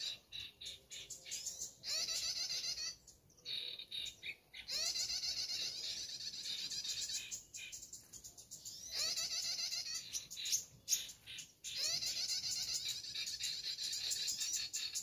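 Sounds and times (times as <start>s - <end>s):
bird chirps and trills: 0.0s - 15.0s.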